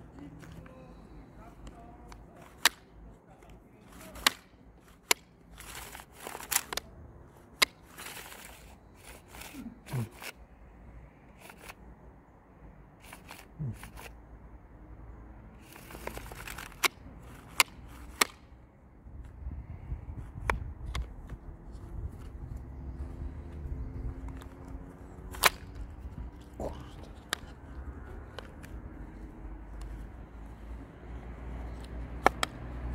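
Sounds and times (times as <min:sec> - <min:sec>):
sharp plastic clicks: 0:01.6 - 0:10.4, 0:11.3 - 0:11.8, 0:13.0 - 0:14.2, 0:15.6 - 0:18.6, 0:20.4 - 0:21.4, 0:24.2 - 0:30.7, 0:31.4 - 0:32.9.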